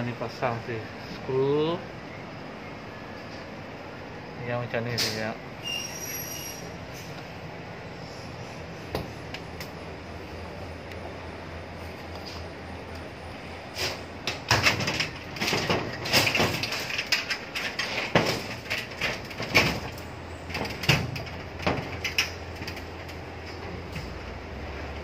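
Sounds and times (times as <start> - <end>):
aluminium frame strips clattering: 13.8 - 24.1.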